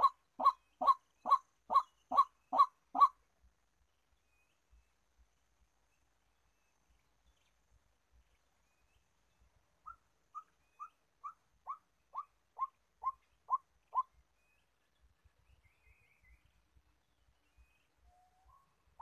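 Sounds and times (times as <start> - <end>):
waterhen calling: 0.0 - 3.2.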